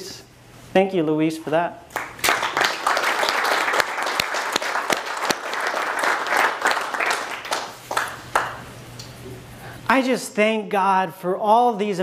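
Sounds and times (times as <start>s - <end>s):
audience applauding: 2.0s - 8.7s.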